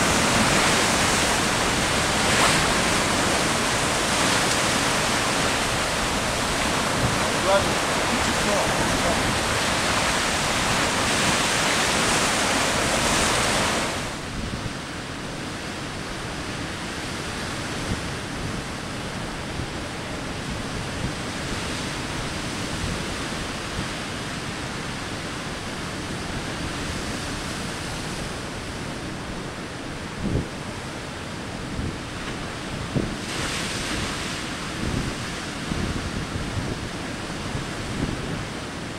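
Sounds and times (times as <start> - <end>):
surf breaking over rocks: 0.0 - 14.4, 32.3 - 38.5.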